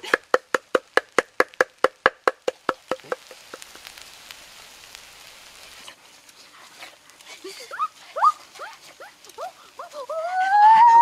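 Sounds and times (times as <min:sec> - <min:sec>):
rapid chopping on wood: 0:00.0 - 0:03.3
faint hiss: 0:00.0 - 0:11.0.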